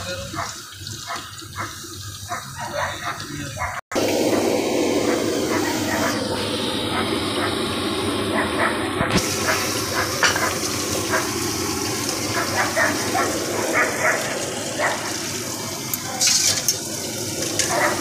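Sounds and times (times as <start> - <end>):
food sizzling in hot oil: 9.1 - 18.0.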